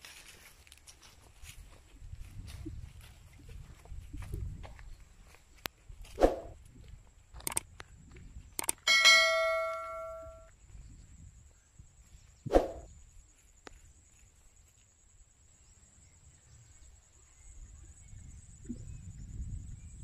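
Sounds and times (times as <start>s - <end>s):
button clicks: 8.6s - 10.4s
bright bell ding: 8.9s - 10.5s.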